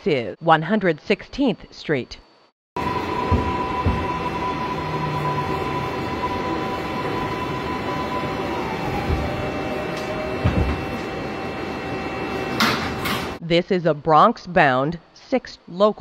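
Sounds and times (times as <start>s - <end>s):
electric motor whine: 2.8s - 12.6s
subway car rumble: 2.8s - 13.4s.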